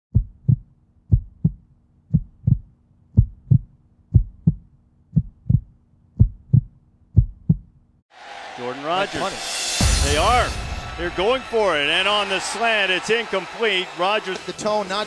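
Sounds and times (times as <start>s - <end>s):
heartbeat thumps: 0.1s - 7.8s.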